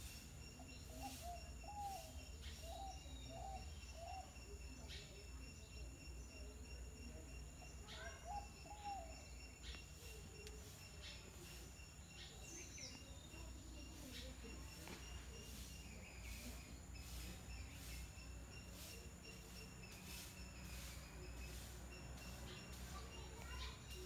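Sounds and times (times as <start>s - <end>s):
short chirping calls: 0.0s - 5.6s.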